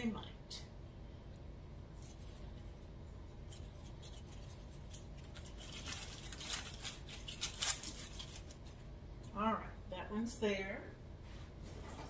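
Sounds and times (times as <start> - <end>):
crackling rustle of artificial leaves: 1.9 - 9.4.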